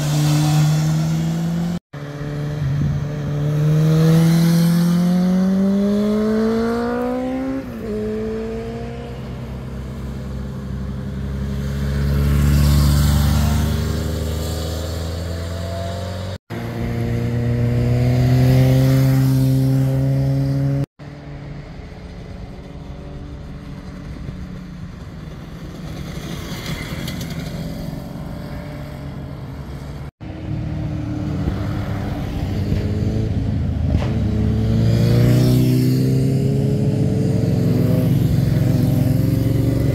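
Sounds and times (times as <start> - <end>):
motorcycles accelerating past: 0.0 - 21.2, 29.7 - 39.9.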